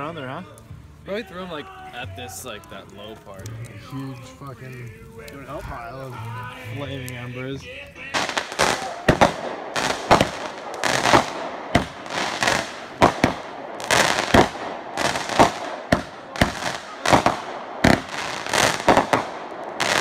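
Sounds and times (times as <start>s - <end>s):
fireworks bangs: 8.1s - 20.0s.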